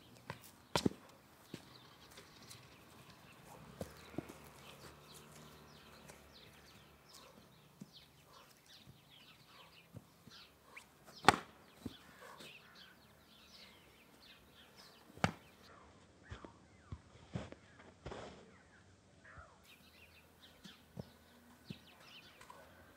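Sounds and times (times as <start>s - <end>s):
birds chirping: 0.0s - 22.9s
foam sabres striking: 11.2s - 11.6s, 15.2s - 15.5s.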